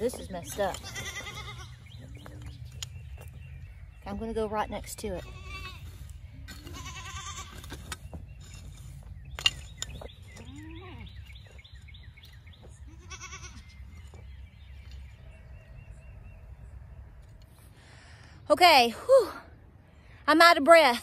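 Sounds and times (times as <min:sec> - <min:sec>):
goats bleating: 0:00.6 - 0:01.8, 0:05.2 - 0:07.6, 0:12.9 - 0:13.7.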